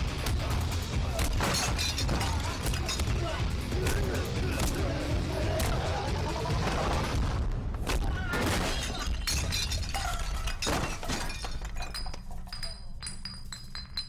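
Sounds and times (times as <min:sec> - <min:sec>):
glass shattering: 0:01.2 - 0:03.2, 0:08.4 - 0:14.0
glass shards clinking: 0:01.4 - 0:03.2, 0:08.7 - 0:14.0.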